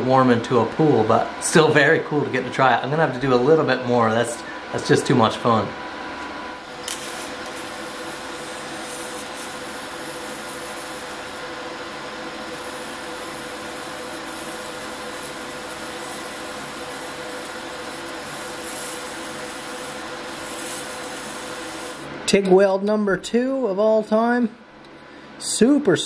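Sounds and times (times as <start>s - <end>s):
welding arc hissing: 6.6s - 22.2s.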